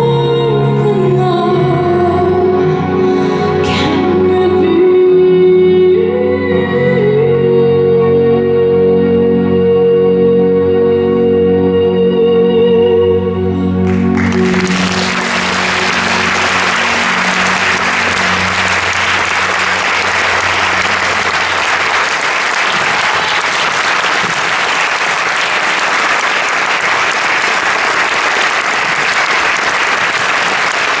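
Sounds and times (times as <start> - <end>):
low music chord: 12.8 - 22.4
audience applauding: 13.8 - 31.0.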